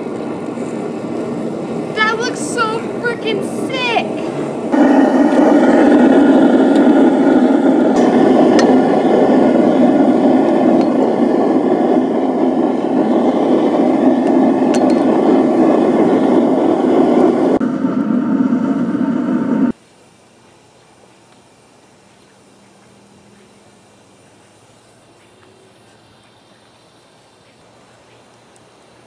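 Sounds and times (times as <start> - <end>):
furnace burner roaring: 0.0 - 19.8.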